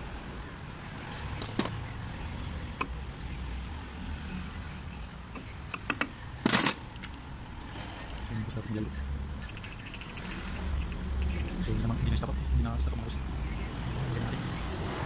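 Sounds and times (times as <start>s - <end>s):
metal parts clicking: 1.3s - 1.9s, 5.4s - 7.2s.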